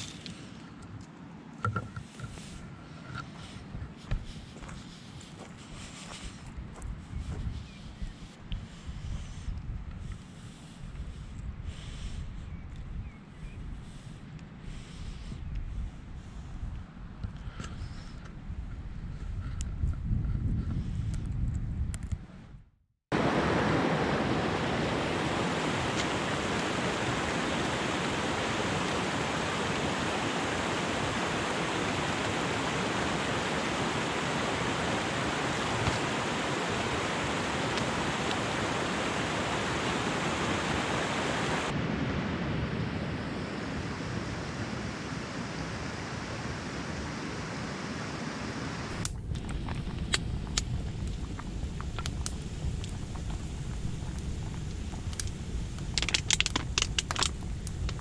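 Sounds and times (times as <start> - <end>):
stream rushing over rocks: 23.2 - 41.8, 44.8 - 58.0
frying pan hiss: 48.9 - 58.0
wood stove crackling: 48.9 - 58.0.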